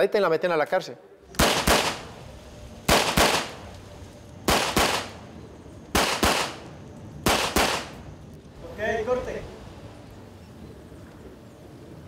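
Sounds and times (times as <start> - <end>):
pistol shots with echo: 1.3 - 2.1, 2.9 - 3.6, 4.5 - 5.2, 5.9 - 8.0.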